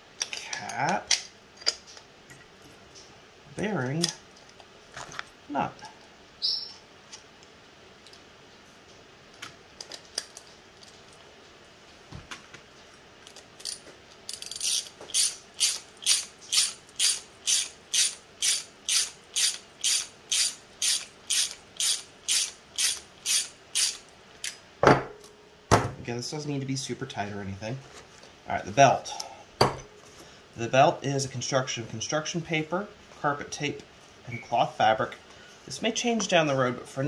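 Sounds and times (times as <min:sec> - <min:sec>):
ratchet wrench clicking: 0:13.6 - 0:24.0.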